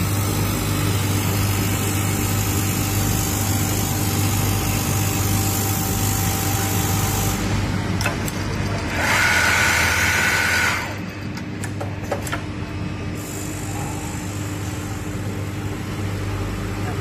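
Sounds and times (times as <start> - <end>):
sewing machine humming: 8.9 - 11.0.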